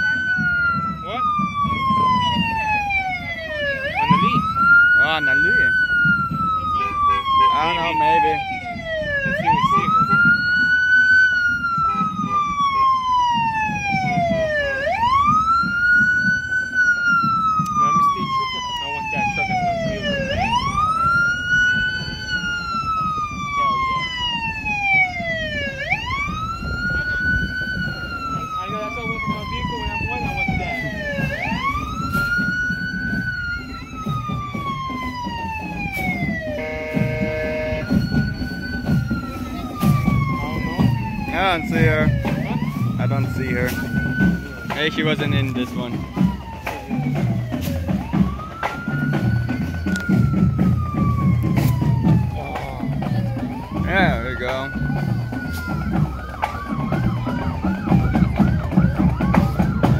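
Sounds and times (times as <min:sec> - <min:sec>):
emergency siren wailing: 0:00.0 - 0:59.9
two-tone horn blast: 0:06.7 - 0:07.6, 0:36.5 - 0:38.0.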